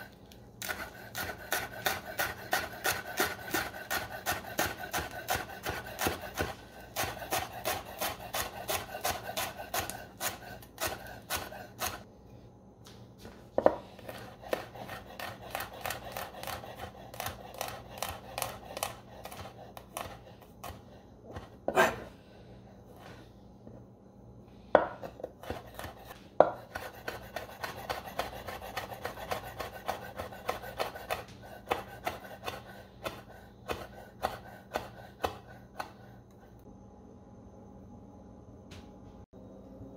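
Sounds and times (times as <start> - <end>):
knife chopping on wooden board: 0.6 - 12.0, 13.6 - 22.1, 24.8 - 36.0.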